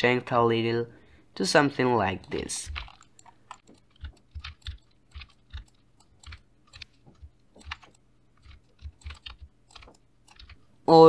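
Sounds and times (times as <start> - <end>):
mouse and keyboard clicking: 2.2 - 10.6.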